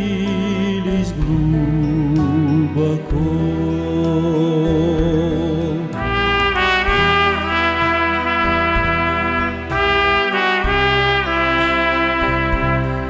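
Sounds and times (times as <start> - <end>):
bass line: 0.0 - 13.0
trumpet-like lead melody: 5.8 - 13.0
steady beat: 6.0 - 11.2.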